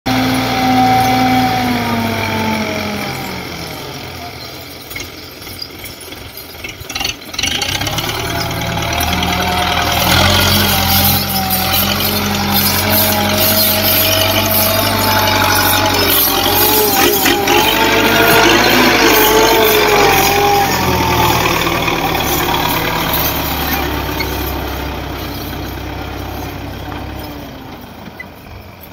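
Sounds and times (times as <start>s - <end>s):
tractor diesel engine working: 0.0s - 28.9s
metal clanks and rattles: 4.2s - 28.9s.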